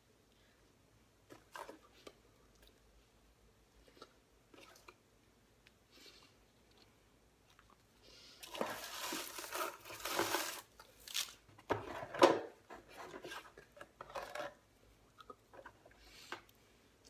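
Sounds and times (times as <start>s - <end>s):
paper and packaging rustling: 8.5s - 12.1s.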